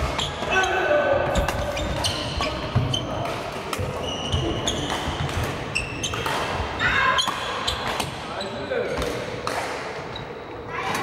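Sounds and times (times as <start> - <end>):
court shoes squeaking: 0.0 - 11.0
racket hitting shuttlecock: 4.7 - 8.3.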